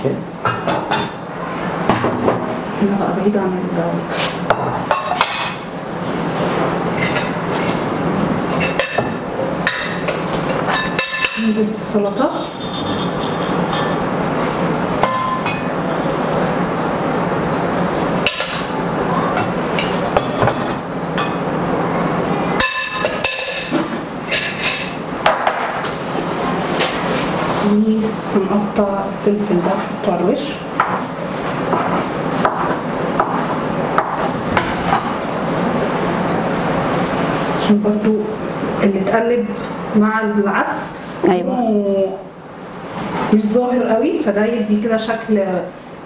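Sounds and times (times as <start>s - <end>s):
dishes clinking on counter: 8.5s - 11.6s, 15.0s - 15.7s, 19.4s - 21.4s, 22.6s - 25.8s.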